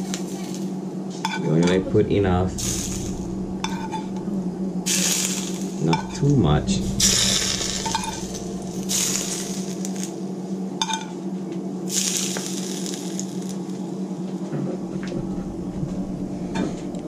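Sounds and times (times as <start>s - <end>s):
steady hum: 0.0s - 17.0s
hot oil sizzling on fish: 4.9s - 5.8s, 7.0s - 10.1s, 11.9s - 13.8s.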